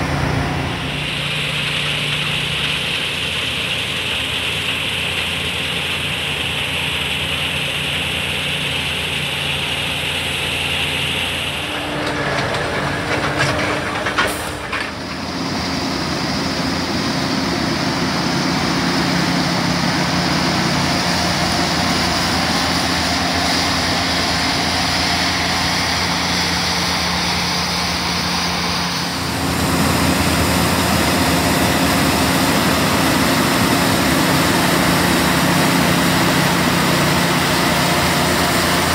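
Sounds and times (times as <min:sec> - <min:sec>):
combine harvester engine drone: 0:00.0 - 0:38.9
brief machinery clatter: 0:11.6 - 0:15.4.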